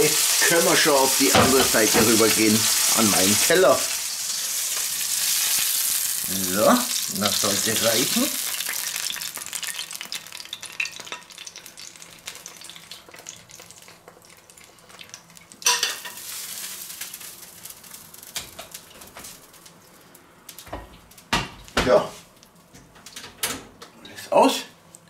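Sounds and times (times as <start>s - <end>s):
pan juices poured sizzling: 0.0s - 19.6s
fat sizzling in a frying pan: 0.0s - 22.6s.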